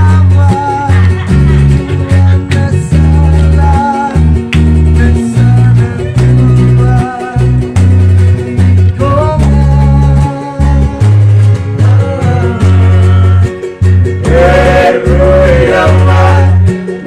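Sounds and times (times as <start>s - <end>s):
acoustic guitar strumming: 0.0s - 17.0s
heavy bass line: 0.0s - 17.0s
voices singing along: 14.2s - 17.0s.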